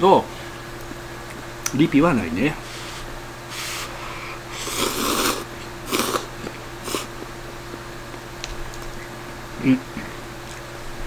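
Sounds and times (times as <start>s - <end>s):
person slurping noodles: 2.7s - 7.2s.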